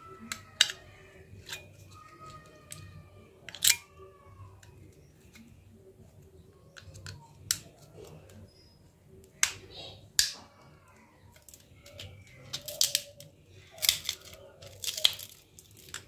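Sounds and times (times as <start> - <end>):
plastic phone parts clicking: 0.1 - 3.9, 6.6 - 8.4, 11.3 - 16.0.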